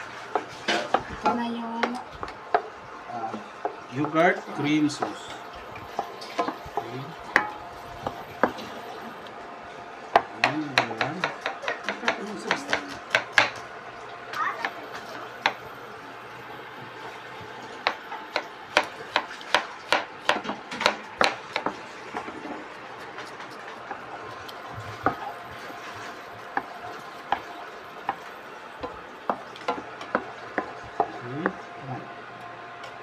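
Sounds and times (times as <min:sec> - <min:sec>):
wooden spoon stirring in pan: 0:00.0 - 0:13.8, 0:16.6 - 0:32.2
knife chopping on cutting board: 0:10.2 - 0:13.6, 0:17.8 - 0:22.4.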